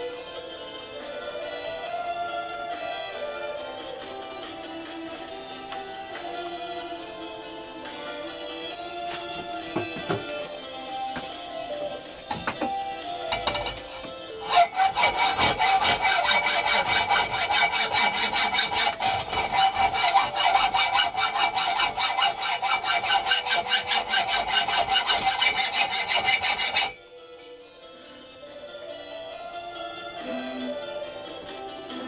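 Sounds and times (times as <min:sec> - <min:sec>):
hacksaw sawing: 0:09.1 - 0:10.5, 0:12.3 - 0:27.0.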